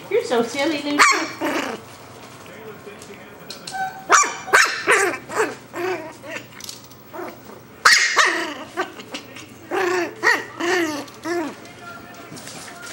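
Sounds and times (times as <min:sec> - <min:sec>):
puppy yapping and barking: 0:01.0 - 0:01.8, 0:03.8 - 0:06.5, 0:07.1 - 0:08.8.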